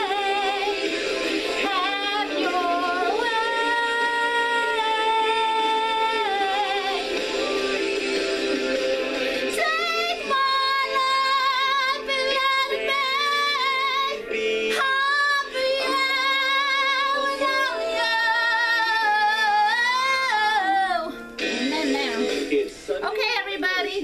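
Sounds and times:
woman singing with vibrato: 0:00.0 - 0:00.9, 0:01.5 - 0:07.7, 0:09.5 - 0:22.4
backing music: 0:00.0 - 0:24.0.

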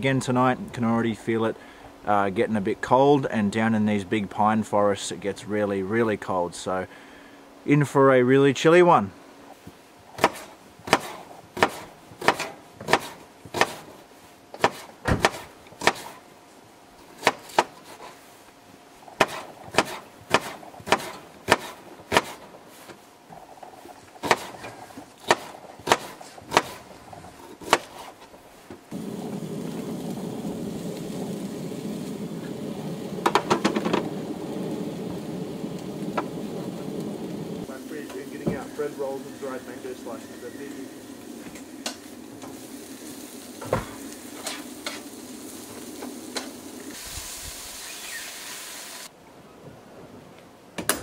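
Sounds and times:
knife chopping on wooden board: 0:10.2 - 0:13.9, 0:14.6 - 0:16.2, 0:17.2 - 0:18.0, 0:19.2 - 0:22.4, 0:24.2 - 0:24.6, 0:25.2 - 0:26.8, 0:27.6 - 0:28.2
onions and sausages sizzling: 0:28.9 - 0:49.1.

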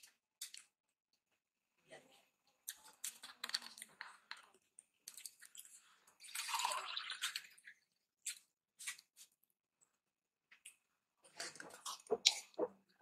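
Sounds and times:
water pouring into a glass: 0:06.2 - 0:07.8
wet squishing eating sounds: 0:11.4 - 0:13.0.

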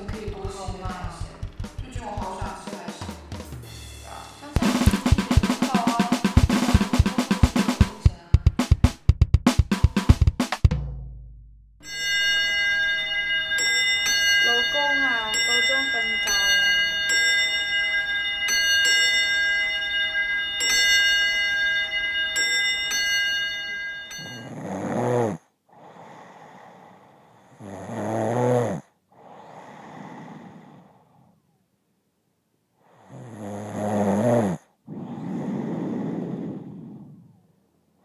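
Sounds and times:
chiming clock bells: 0:04.5 - 0:07.9, 0:11.8 - 0:24.5
woman snoring loudly: 0:24.4 - 0:31.1, 0:32.9 - 0:37.4
quiet breaths: 0:25.7 - 0:31.6, 0:32.7 - 0:38.0.

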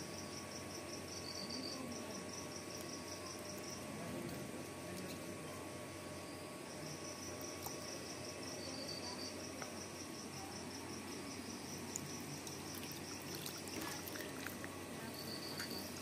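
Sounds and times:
high pulsing insect chirp: 0:00.0 - 0:04.7, 0:05.4 - 0:16.0
water sloshing and trickling: 0:12.0 - 0:16.0.

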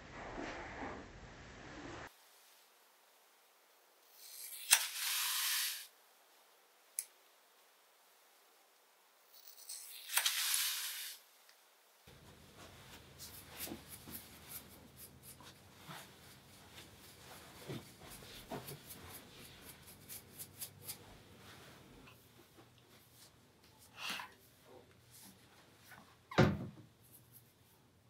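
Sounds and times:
brush sweeping over skin: 0:12.1 - 0:22.0.

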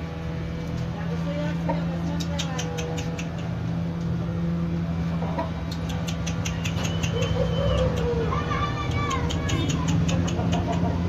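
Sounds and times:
steady low hum: 0:00.0 - 0:11.0
sharp clicks: 0:02.1 - 0:03.7, 0:05.6 - 0:08.2, 0:08.9 - 0:11.0
rooster clucking: 0:05.2 - 0:11.0.

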